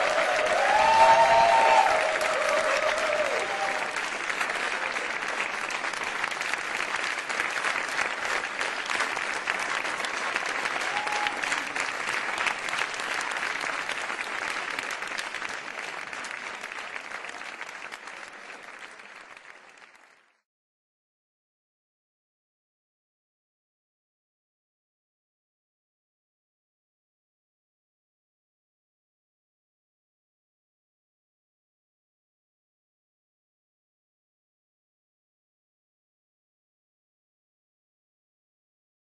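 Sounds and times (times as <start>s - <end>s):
crowd calls: 0.0s - 4.0s
audience applauding: 0.0s - 20.4s.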